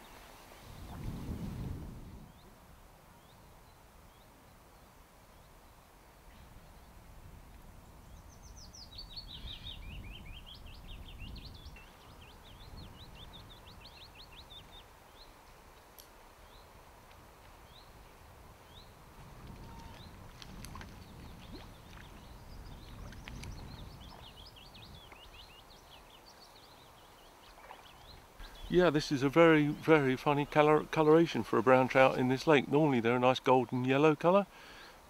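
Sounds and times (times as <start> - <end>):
songbird singing: 2.1 - 7.0, 7.7 - 34.9
bird chirps: 21.0 - 29.0.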